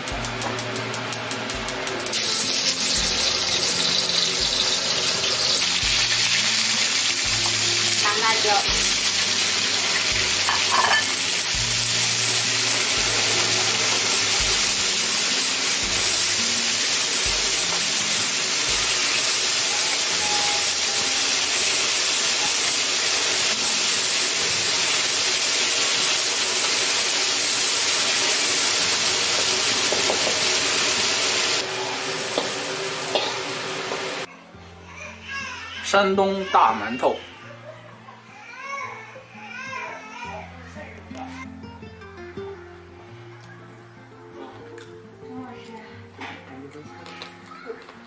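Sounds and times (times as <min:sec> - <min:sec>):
meat and peppers sizzling in a wok: 0:00.0 - 0:48.0.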